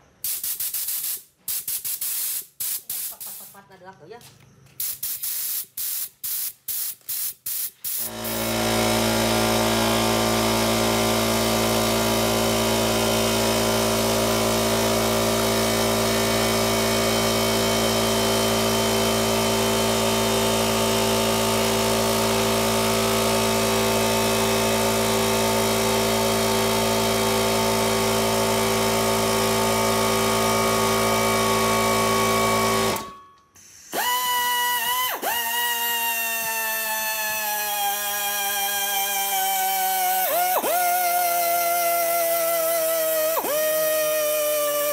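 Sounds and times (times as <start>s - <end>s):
air blow gun bursts: 0.2s - 3.6s, 4.8s - 24.8s, 33.8s - 44.9s
air compressor running: 4.7s - 44.9s
air die grinder whine: 8.0s - 33.2s, 33.8s - 44.9s.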